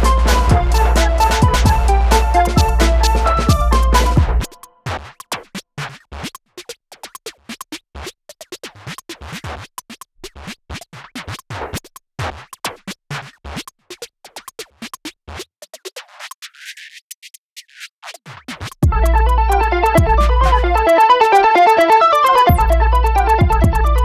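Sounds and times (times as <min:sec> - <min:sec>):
choppy electronic beat music: 0:00.0 - 0:05.4, 0:18.3 - 0:24.0.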